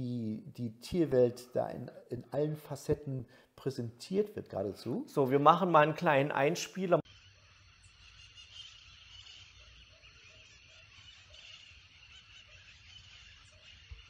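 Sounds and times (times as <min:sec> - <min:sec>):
birds chirring: 0:05.3 - 0:14.0.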